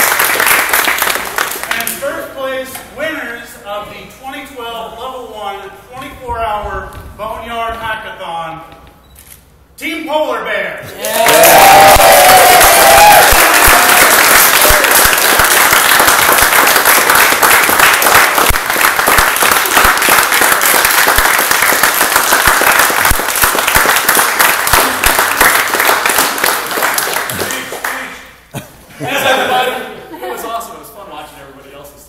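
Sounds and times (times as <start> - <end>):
group of people applauding: 0.0 - 2.0, 11.0 - 28.2.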